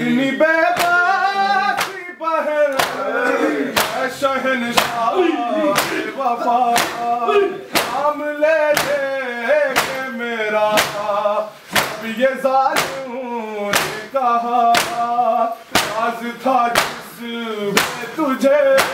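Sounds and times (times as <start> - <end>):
men chanting a lament: 0.0 - 18.9
hands slapping chests: 0.7 - 1.1, 1.8 - 2.0, 2.7 - 3.0, 3.7 - 4.1, 4.8 - 5.1, 5.7 - 6.1, 6.7 - 7.1, 7.7 - 8.1, 8.7 - 9.0, 9.7 - 10.1, 10.7 - 11.1, 11.7 - 13.0, 13.7 - 14.0, 14.7 - 15.1, 15.7 - 16.1, 16.7 - 17.1, 17.8 - 18.1.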